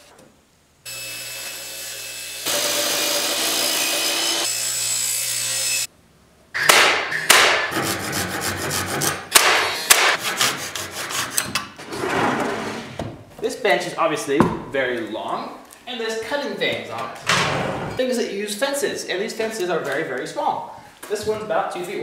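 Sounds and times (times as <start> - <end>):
hand saw rasping through wood: 7.7 - 11.4.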